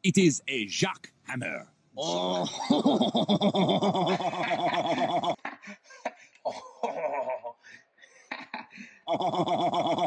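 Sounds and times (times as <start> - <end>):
man laughing hard: 2.4 - 5.4, 6.7 - 7.6.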